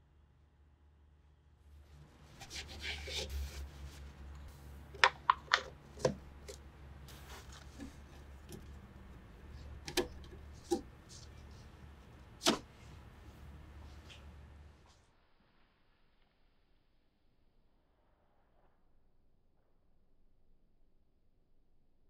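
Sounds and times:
low steady hum: 0.0 - 14.9
rag rubbing on plastic: 2.3 - 4.3.

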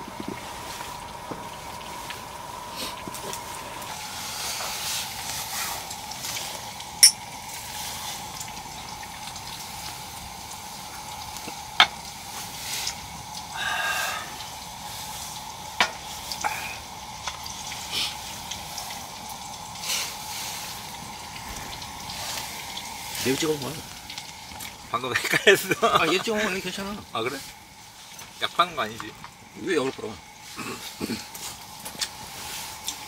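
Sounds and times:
food sizzling in a pan: 0.0 - 33.0
thin steady high tone: 7.0 - 7.3.

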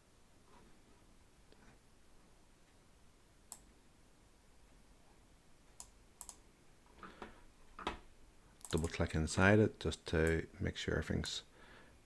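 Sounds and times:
computer mouse clicks: 3.5 - 3.7, 5.8 - 6.4, 8.6 - 9.0.

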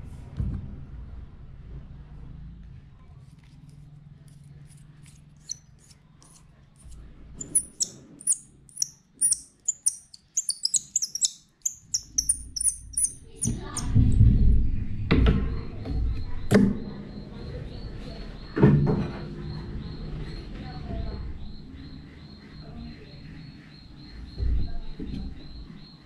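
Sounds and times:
small bird chirping: 5.4 - 14.6.

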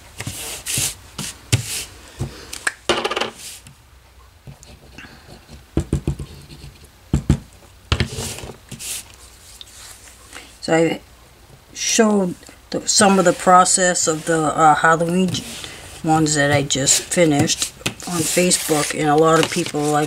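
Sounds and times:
hands rubbing paper: 8.0 - 10.2, 13.0 - 20.0.

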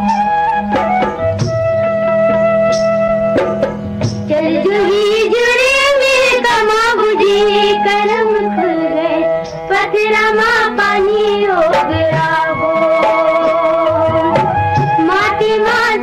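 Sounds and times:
instrumental accompaniment: 0.0 - 16.0
woman singing: 4.3 - 16.0.

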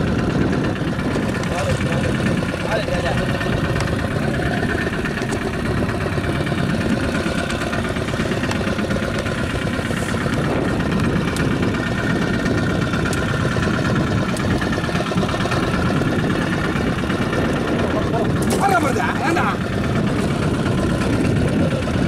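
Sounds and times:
boat engine idling: 0.0 - 22.0.

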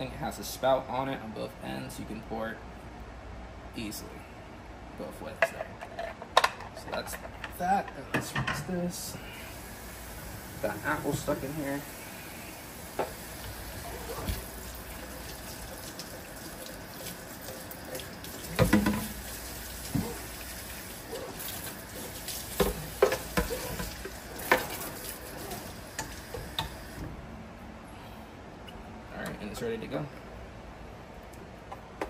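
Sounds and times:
tap water running into sink: 12.9 - 27.0.

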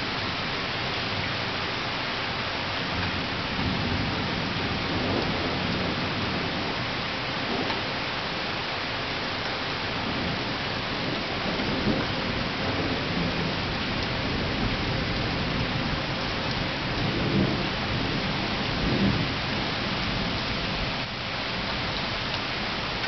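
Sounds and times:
steady rain: 0.0 - 23.0
thunder rumbling: 3.0 - 8.4, 9.7 - 22.0.

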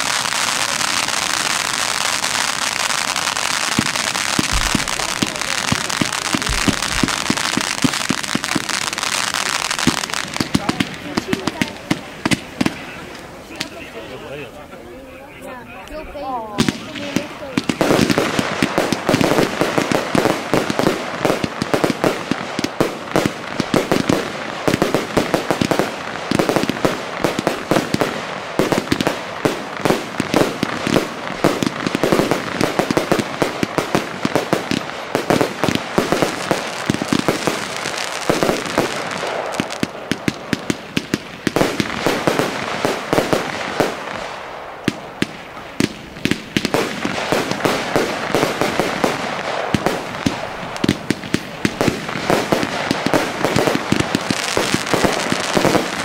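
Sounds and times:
fireworks launching and bursting: 0.0 - 14.7, 15.3 - 56.0
fireworks crackle: 0.0 - 56.0.

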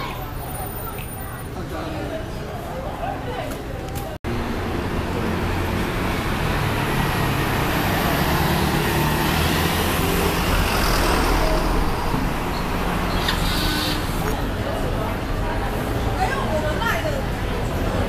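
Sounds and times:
passing cars and scooters: 4.3 - 18.0.

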